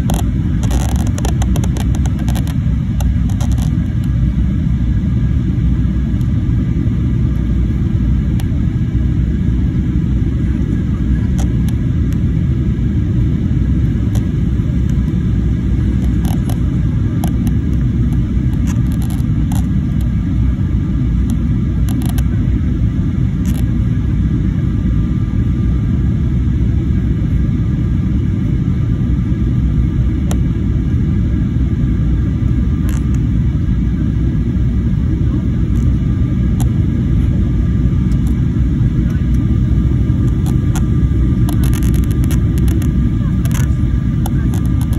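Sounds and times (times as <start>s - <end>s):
faint steady whine: 0.0s - 44.9s
jet airliner cabin rumble: 0.0s - 44.9s.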